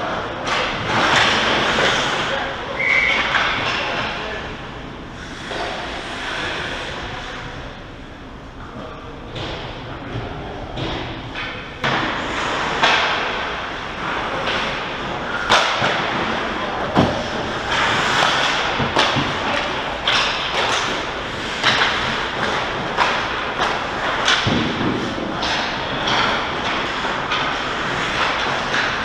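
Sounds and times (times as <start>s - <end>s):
skates scraping on ice: 5.2s - 7.3s, 11.9s - 29.0s.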